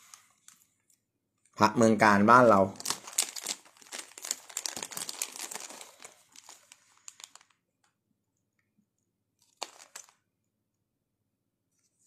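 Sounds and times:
plastic bags crinkling: 0:02.6 - 0:07.9, 0:09.4 - 0:10.3.

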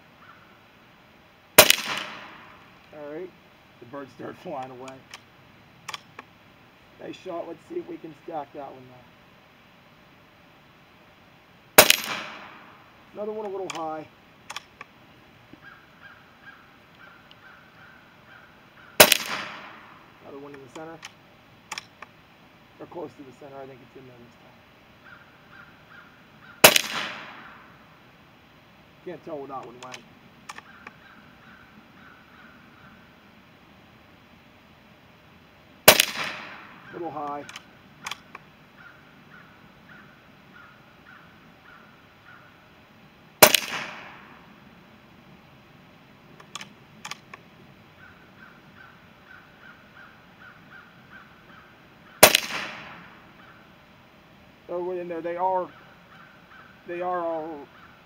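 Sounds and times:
bird calling: 0:00.0 - 0:00.7, 0:11.8 - 0:28.3, 0:29.0 - 0:33.5, 0:35.8 - 0:42.8, 0:46.2 - 0:58.0
air rifle shot: 0:01.6 - 0:02.7, 0:11.8 - 0:12.8, 0:19.0 - 0:20.1, 0:26.6 - 0:27.8, 0:35.8 - 0:38.3, 0:43.4 - 0:44.5, 0:52.2 - 0:53.4
sharp click: 0:05.9 - 0:06.3, 0:14.5 - 0:14.9, 0:20.5 - 0:22.1, 0:29.6 - 0:31.0, 0:37.2 - 0:38.4, 0:46.4 - 0:47.4.

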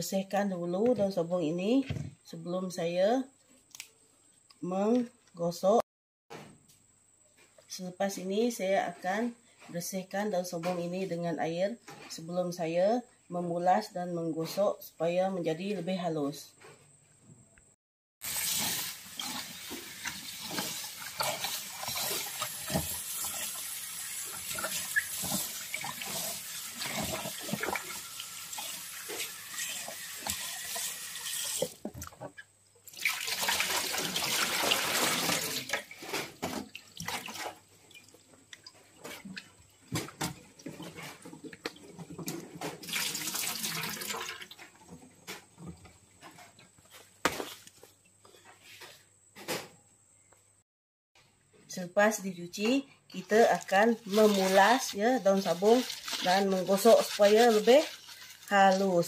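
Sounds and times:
tap water splashing into basin: 0:18.2 - 0:32.2, 0:32.9 - 0:40.8, 0:41.4 - 0:44.8
hands sloshing leaves in water: 0:32.9 - 0:38.2, 0:53.2 - 0:59.0.

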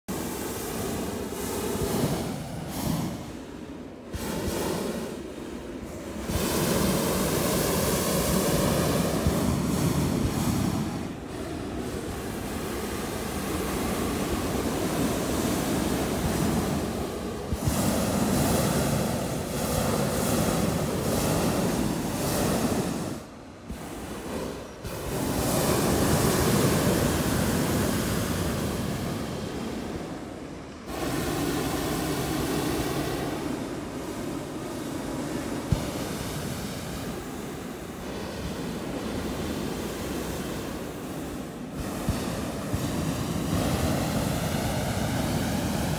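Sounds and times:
propane burner roaring: 0:00.1 - 0:45.9.

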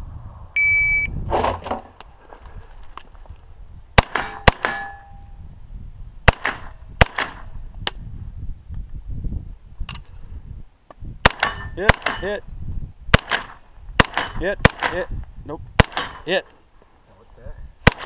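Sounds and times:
rifle shots: 0:04.0 - 0:05.0, 0:06.3 - 0:07.5, 0:11.2 - 0:12.2, 0:13.1 - 0:15.0, 0:15.8 - 0:16.3
metallic ring of steel target: 0:04.1 - 0:05.4, 0:11.3 - 0:12.4, 0:14.1 - 0:14.4, 0:15.9 - 0:16.3.

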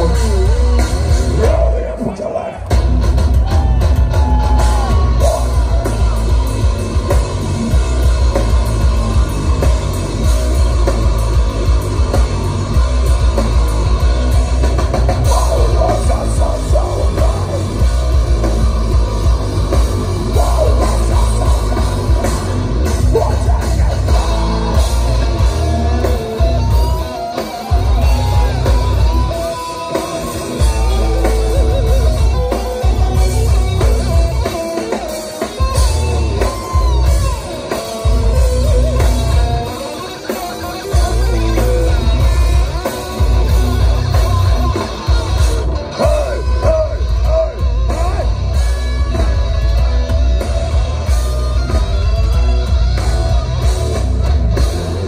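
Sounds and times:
bass guitar: 0:00.0 - 0:55.0
distorted electric guitars: 0:00.0 - 0:55.0
drum kit: 0:00.0 - 0:55.0
person singing: 0:20.2 - 0:22.3, 0:22.9 - 0:26.4, 0:45.9 - 0:48.3.

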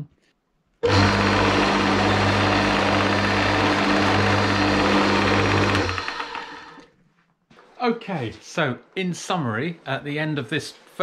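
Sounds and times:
lathe motor hum: 0:00.8 - 0:06.8.

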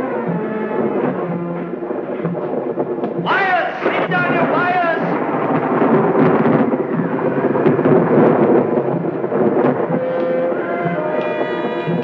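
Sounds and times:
thunder crackles: 0:00.0 - 0:12.0
thunder rumbling: 0:00.0 - 0:12.0.

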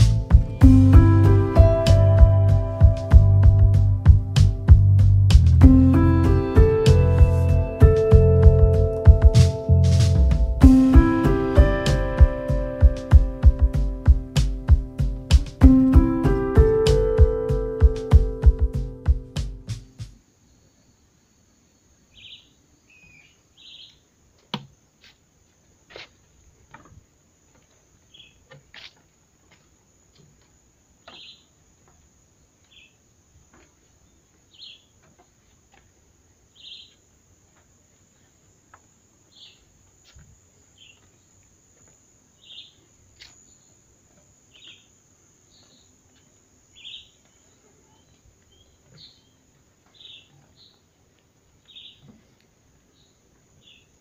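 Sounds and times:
steady high hiss: 0:00.0 - 0:54.0
bird chirping: 0:22.0 - 0:24.1, 0:28.0 - 0:28.6, 0:31.0 - 0:31.6, 0:32.4 - 0:35.7, 0:36.4 - 0:37.1, 0:39.2 - 0:41.4, 0:42.3 - 0:51.0, 0:51.6 - 0:54.0.

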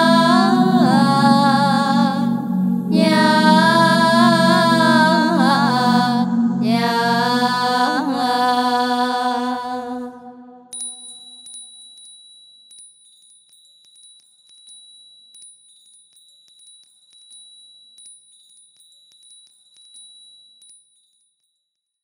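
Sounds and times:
soft low instrument notes: 0:00.0 - 0:09.7
metal chimes tinkling: 0:10.8 - 0:21.2.

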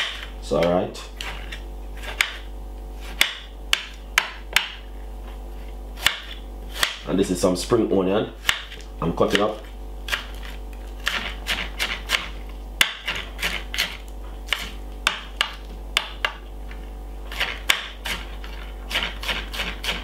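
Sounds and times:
low steady hum: 0:00.0 - 0:20.0
knife chopping on glass board: 0:02.1 - 0:02.4, 0:03.1 - 0:04.8, 0:06.0 - 0:07.0, 0:08.4 - 0:10.4, 0:11.0 - 0:16.4, 0:17.3 - 0:18.3.

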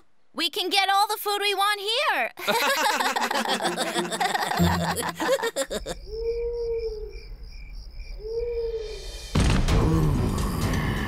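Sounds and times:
cartoon characters laughing: 0:02.4 - 0:06.1
low hooting call: 0:04.5 - 0:07.4, 0:08.1 - 0:09.2
crickets chirping: 0:05.1 - 0:09.3.

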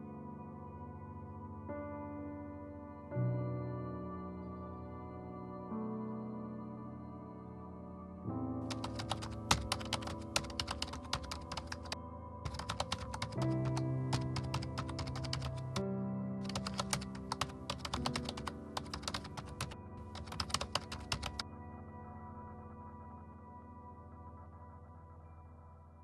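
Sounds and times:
slow ambient music: 0:00.0 - 0:26.0
keyboard typing clicks: 0:08.7 - 0:15.8, 0:16.4 - 0:21.4.

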